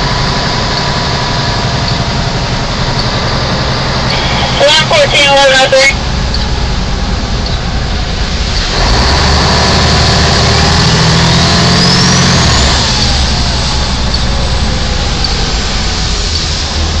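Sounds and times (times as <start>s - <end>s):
diesel engine running under load: 0.0s - 17.0s
tyres rushing through water: 0.0s - 17.0s
faint rising whine: 1.6s - 11.1s.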